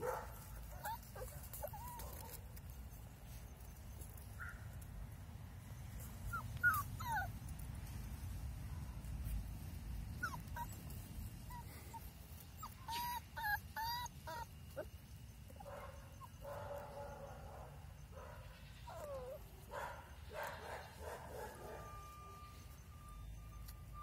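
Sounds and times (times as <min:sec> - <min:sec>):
puppies yelping: 0:00.6 - 0:02.4, 0:06.3 - 0:07.4, 0:10.2 - 0:16.8, 0:18.8 - 0:22.3.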